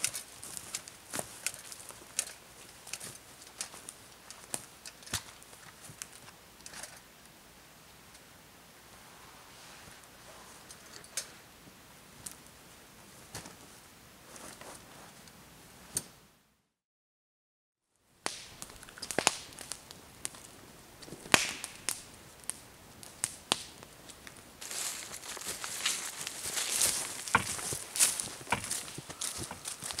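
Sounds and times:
footsteps on leaves and twigs: 0.0 - 6.3, 24.1 - 30.0.

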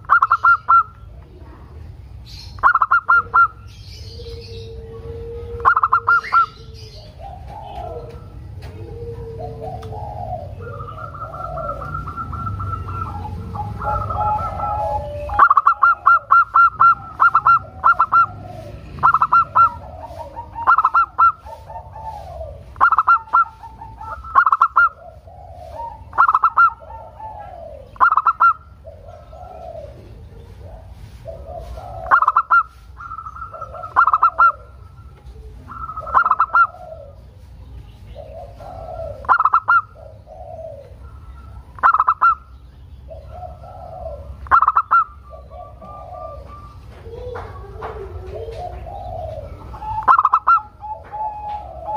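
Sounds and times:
dove cooing song: 0.0 - 51.9.

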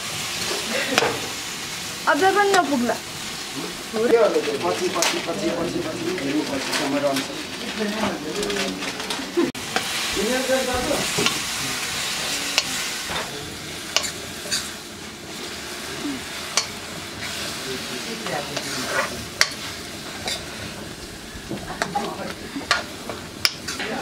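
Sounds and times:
noodles sizzling in a wok: 0.0 - 24.0
metal ladle scraping a pan: 11.0 - 14.8, 18.2 - 21.0.

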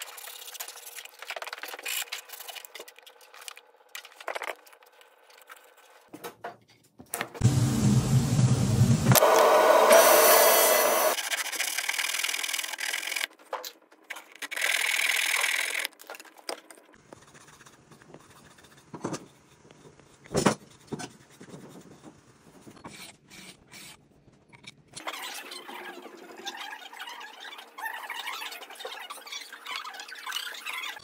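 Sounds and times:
power tool working wood: 7.4 - 11.2
table saw cutting wood: 7.4 - 11.2
hand tools and wood handling: 9.1 - 30.9.

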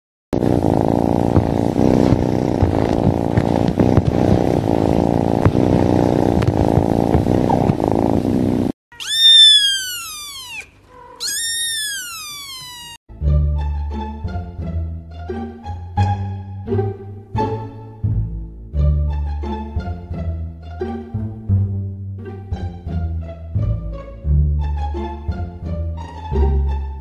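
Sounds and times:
kitten purring: 0.4 - 13.0
kitten meowing: 8.9 - 13.0.

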